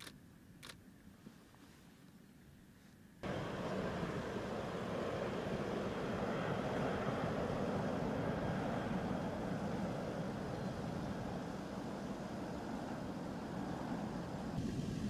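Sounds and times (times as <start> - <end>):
jet engines droning: 3.2 - 15.0.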